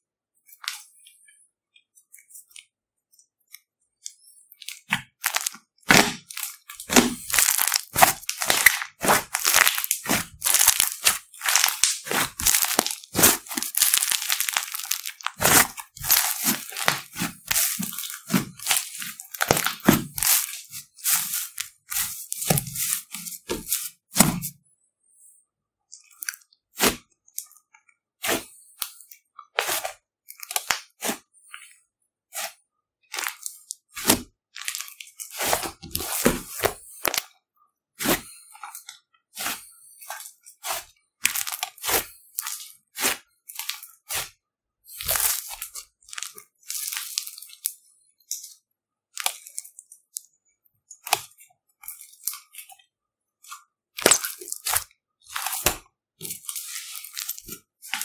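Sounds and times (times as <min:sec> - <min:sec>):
slime crackling and popping: 0:05.1 - 0:24.4, 0:54.0 - 0:54.8.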